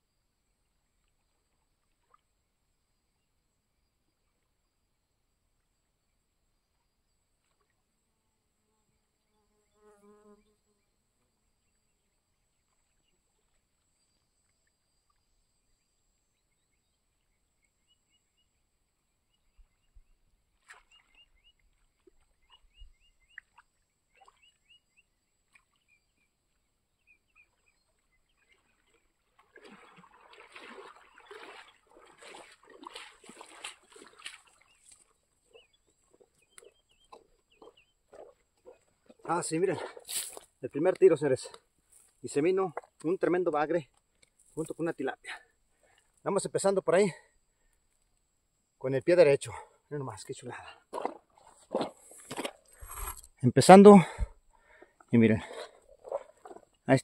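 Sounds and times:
water splashing and dripping: 20.5s - 22.6s, 27.9s - 41.6s, 55.9s - 56.8s
bird chirps: 22.3s - 26.3s, 34.6s - 38.8s.

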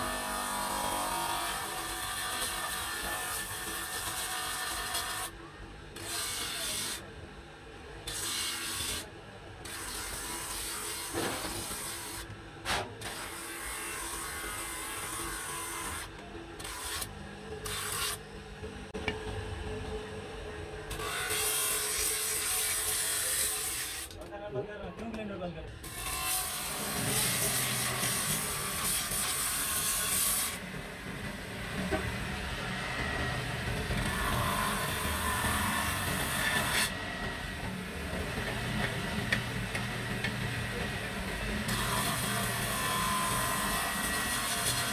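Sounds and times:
grinder motor humming: 0.0s - 5.3s, 25.8s - 44.9s.

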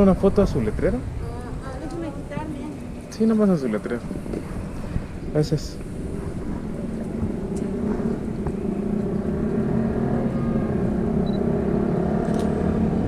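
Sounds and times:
vehicle engine hum: 0.0s - 13.0s.

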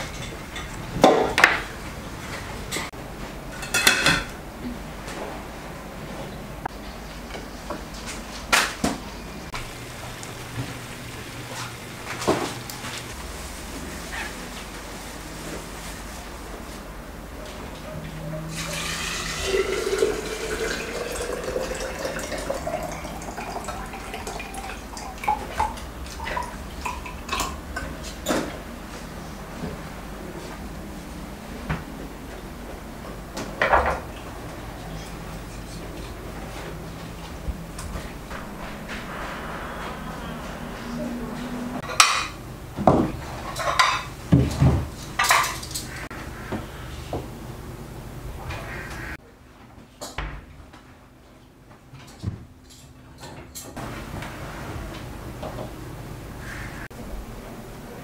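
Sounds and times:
dishes clattering with ringing note: 3.5s - 4.4s, 41.8s - 42.4s
liquid pouring into glass jug: 18.5s - 27.5s.

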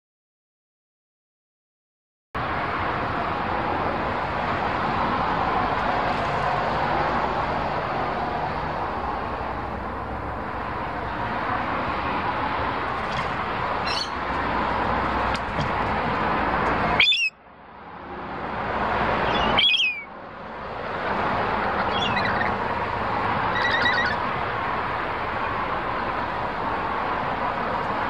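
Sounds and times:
parrots squawking: 13.8s - 14.3s, 16.9s - 17.3s, 19.1s - 20.1s, 21.6s - 22.6s, 23.4s - 24.3s
steady rushing noise: 17.6s - 28.0s.

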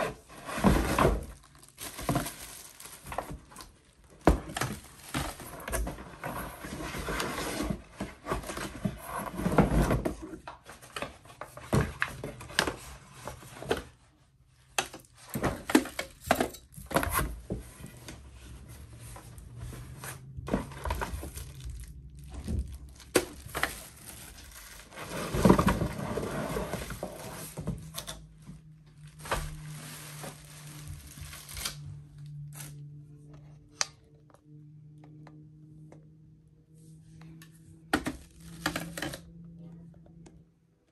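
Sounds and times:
cardboard flaps scraping and knocking: 0.0s - 3.6s, 24.8s - 27.9s
plastic packaging crinkling: 1.2s - 4.0s, 20.9s - 25.5s, 29.0s - 32.7s.

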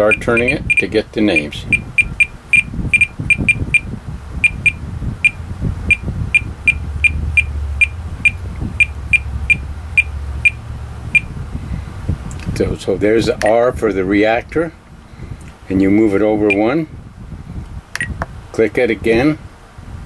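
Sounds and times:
short high beeps: 0.0s - 10.6s, 16.5s - 16.7s
low rumble: 0.0s - 12.3s.

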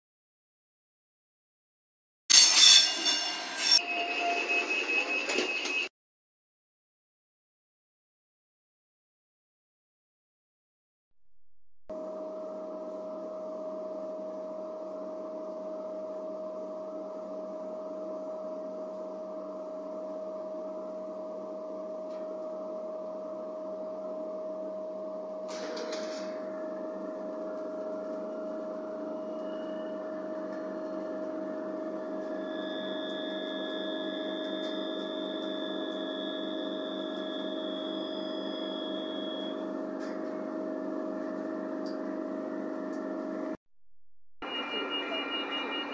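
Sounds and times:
railcar interior machine drone: 25.5s - 43.5s
high steady tone: 44.4s - 45.9s.

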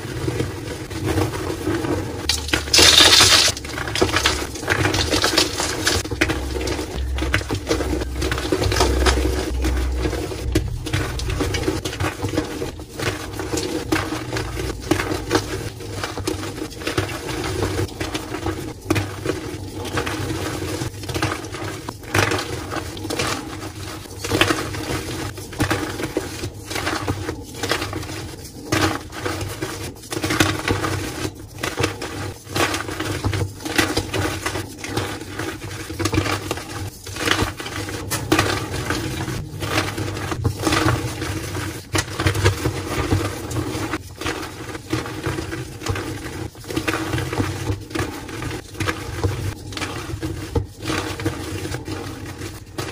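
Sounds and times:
low hum: 2.3s - 16.4s, 37.9s - 42.2s.

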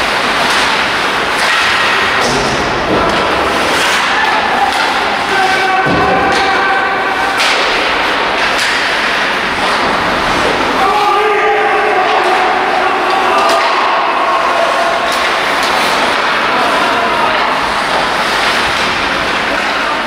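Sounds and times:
puck thudding against boards: 0.0s - 6.7s, 7.3s - 10.8s
hockey sticks clacking: 0.0s - 20.0s
players calling out: 1.4s - 20.0s.

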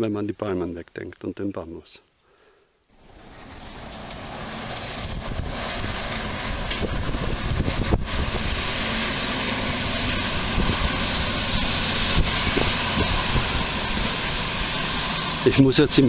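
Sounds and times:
truck rumble: 2.9s - 16.0s
wind rushing over microphone: 3.6s - 15.0s.

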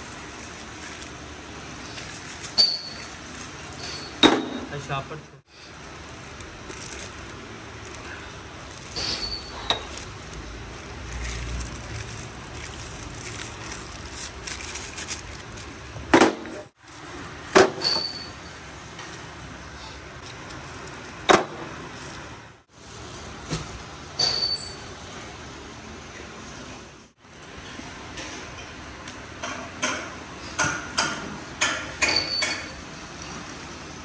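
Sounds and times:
plastic bags rustling: 0.0s - 4.2s, 5.5s - 17.5s.

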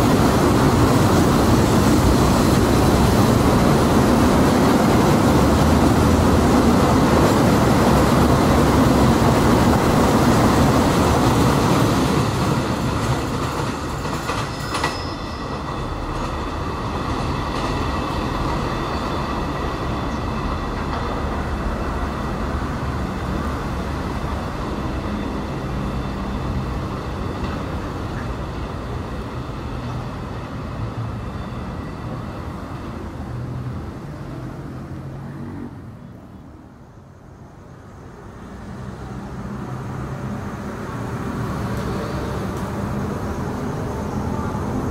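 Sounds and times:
freight train rumbling over rails: 0.0s - 44.9s
high wheel squeal: 14.4s - 16.1s.

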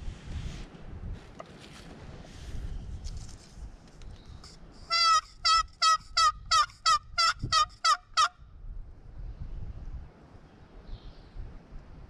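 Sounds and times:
turkey call yelps: 4.9s - 8.3s.

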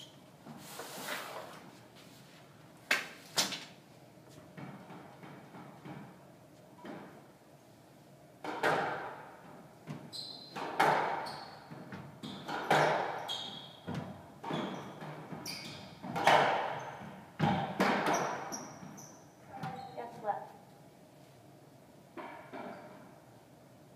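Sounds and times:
squash ball hitting rackets and walls: 4.4s - 6.2s, 8.4s - 19.8s
shoes squeaking on wooden floor: 9.9s - 17.2s, 18.0s - 20.3s.

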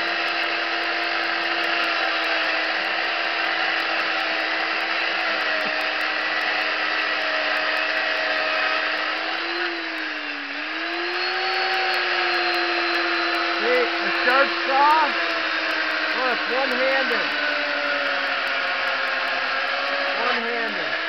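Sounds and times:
chainsaw cutting wood: 0.0s - 21.0s.

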